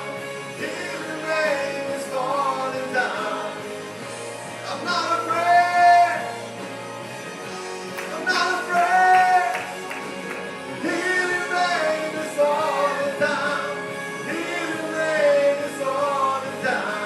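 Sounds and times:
instrumental accompaniment: 0:00.0 - 0:17.0
man singing into a microphone: 0:00.6 - 0:03.8, 0:04.6 - 0:06.4, 0:08.1 - 0:09.7, 0:10.8 - 0:17.0.

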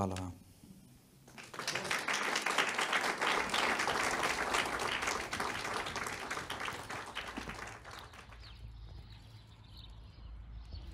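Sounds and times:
audience applause: 0:01.3 - 0:08.6.

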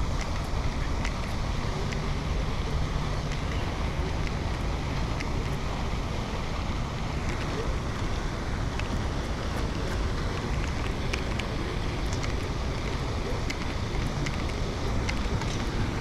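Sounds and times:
faint light ticks: 0:00.0 - 0:02.1
wind buffeting microphone: 0:00.0 - 0:16.0.

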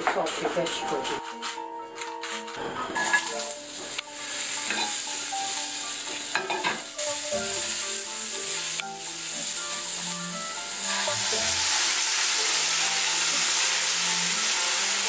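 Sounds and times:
vegetables sizzling in a skillet: 0:02.9 - 0:15.0.

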